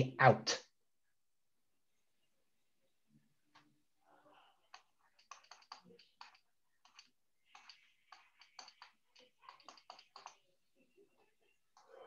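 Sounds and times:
stylus tapping on pen tablet: 4.6 - 10.7.

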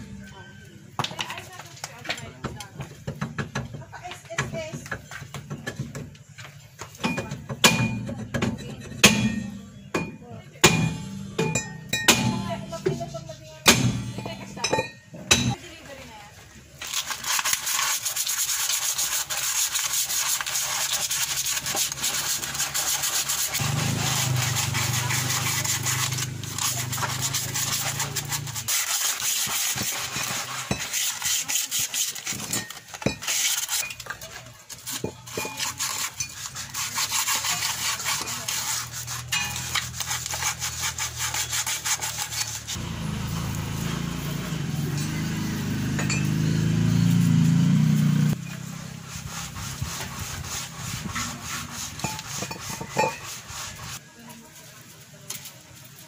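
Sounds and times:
hand scraping brake parts: 16.8 - 42.8, 48.3 - 54.1.

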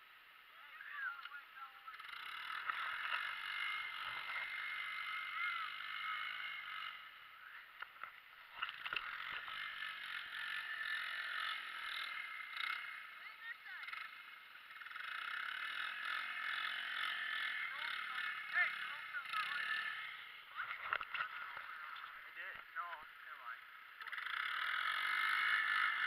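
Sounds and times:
four-wheeler engine running: 0.0 - 26.0
sled scraping and rattling over snow: 8.0 - 14.1, 15.0 - 23.0.

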